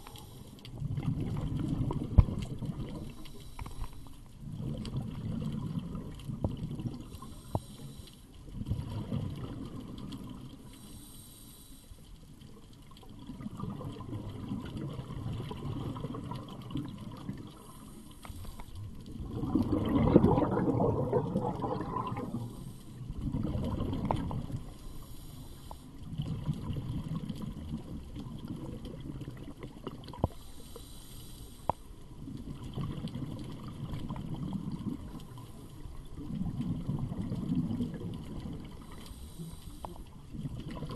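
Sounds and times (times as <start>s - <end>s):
exhaled bubbles underwater: 0.0s - 10.8s, 12.3s - 30.5s, 32.0s - 40.9s.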